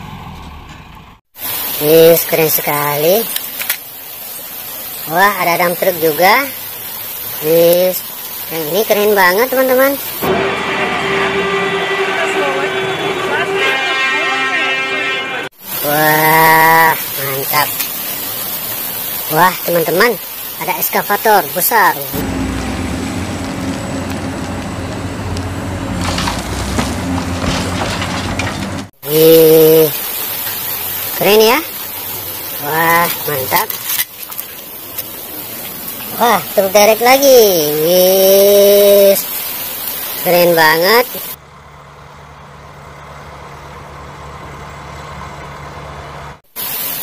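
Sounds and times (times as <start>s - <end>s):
excavator diesel engine running: 10.2s - 15.5s, 22.1s - 29.0s, 41.4s - 46.4s
earth and rock crunching: 22.2s - 28.9s.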